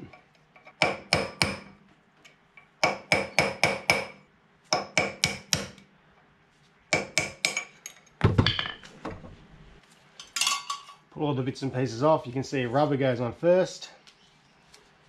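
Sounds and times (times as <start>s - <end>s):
hammer striking metal punch: 0.8s - 1.7s, 2.8s - 5.8s.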